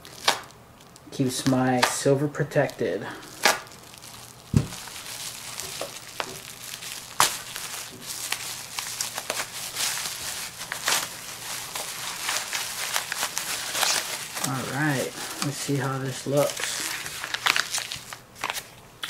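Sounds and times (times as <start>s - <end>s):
bubble wrap crinkling: 0.0s - 19.0s
soft thump: 4.5s - 4.8s.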